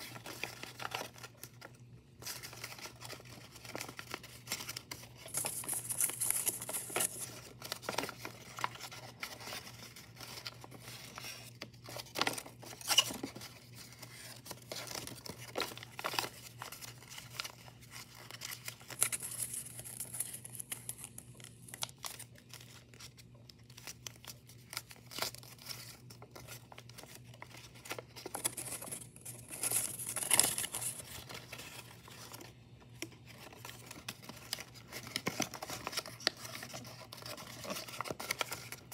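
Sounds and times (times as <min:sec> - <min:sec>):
paper rustling and crinkling: 0:00.0 - 0:38.9.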